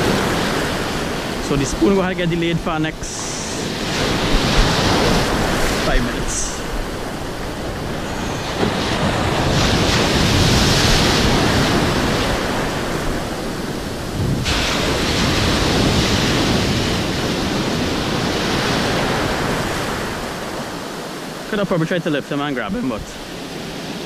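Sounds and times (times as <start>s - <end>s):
wind buffeting microphone: 0.0s - 21.4s
surf breaking and hissing: 0.0s - 24.0s.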